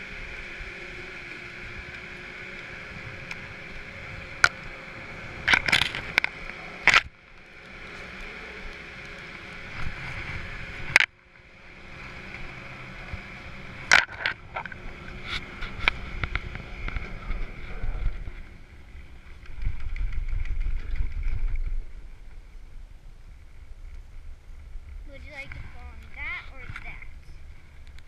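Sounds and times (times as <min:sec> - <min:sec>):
chairlift mechanical hum: 0:00.0 - 0:28.0
low rumble: 0:09.6 - 0:28.0.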